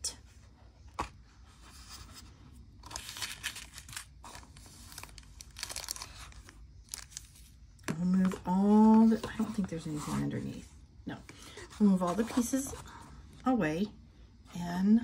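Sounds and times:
plastic sleeve crinkling: 2.8 - 7.6.

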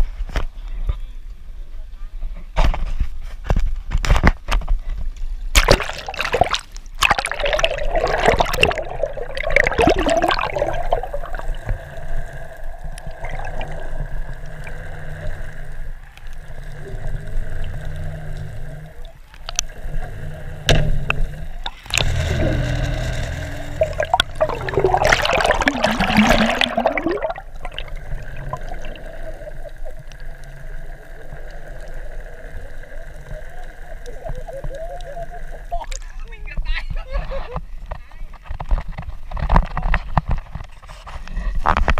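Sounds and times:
water gurgling and bubbling: 5.5 - 36.0
underwater rush of water: 5.6 - 36.6.

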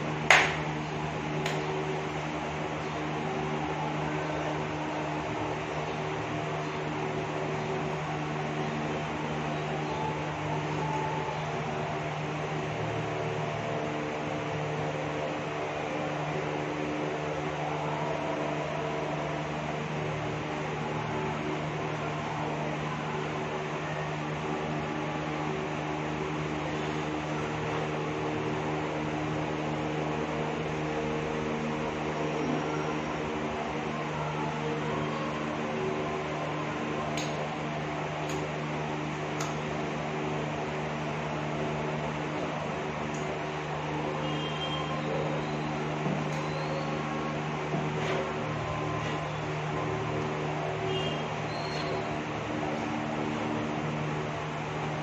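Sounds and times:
mechanical hum with hiss: 0.0 - 55.0.

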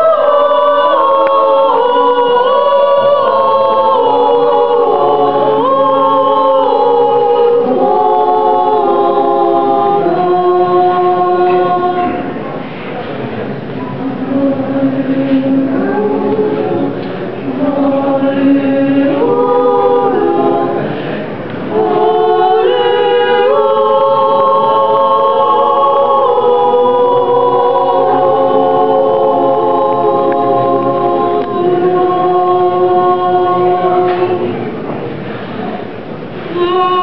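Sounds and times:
women's choir singing a cappella: 0.0 - 37.0.

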